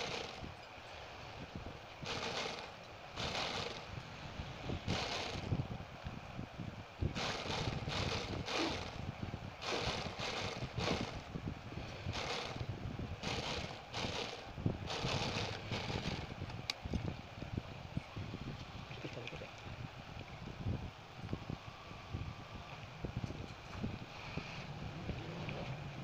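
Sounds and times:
sewing machine stitching fabric: 0:00.0 - 0:00.4, 0:02.0 - 0:03.9, 0:04.9 - 0:05.4, 0:07.2 - 0:09.0, 0:09.6 - 0:11.2, 0:12.1 - 0:12.6, 0:13.2 - 0:16.3
low motor hum: 0:00.0 - 0:26.0.

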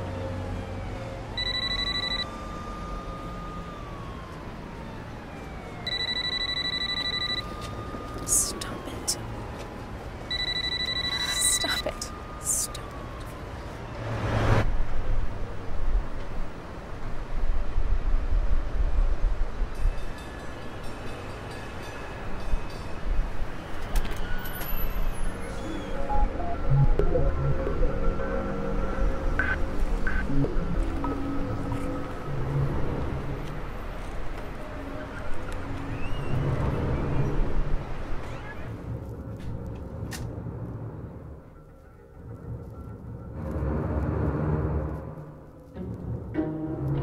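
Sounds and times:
siren wailing: 0:00.0 - 0:14.0, 0:25.3 - 0:33.3
low street rumble: 0:11.3 - 0:47.0.

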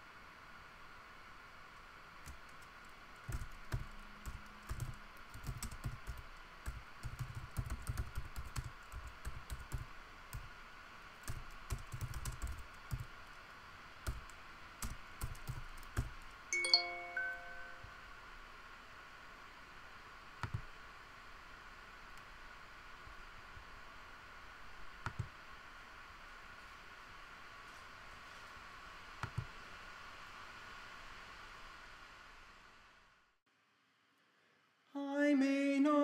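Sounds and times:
keyboard typing: 0:02.2 - 0:10.5, 0:11.2 - 0:13.1, 0:14.0 - 0:17.7
chiming computer alert: 0:16.6 - 0:17.9.

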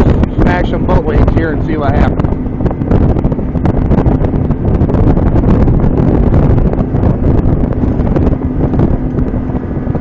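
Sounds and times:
outboard engine hum: 0:00.0 - 0:10.0
wind buffeting microphone: 0:00.0 - 0:10.0.

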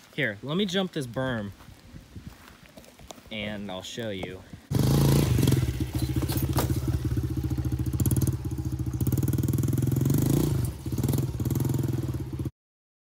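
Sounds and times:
dirt bike engine revving: 0:04.7 - 0:12.5.

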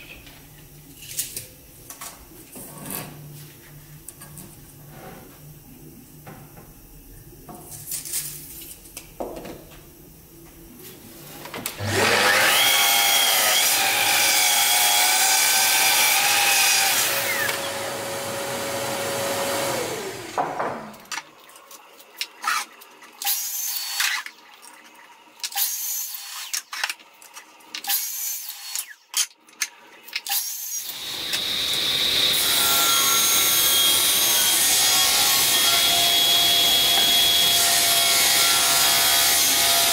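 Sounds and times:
mitre saw whining: 0:11.8 - 0:20.8, 0:30.8 - 0:39.9
table saw running: 0:11.8 - 0:21.0, 0:30.8 - 0:39.9.

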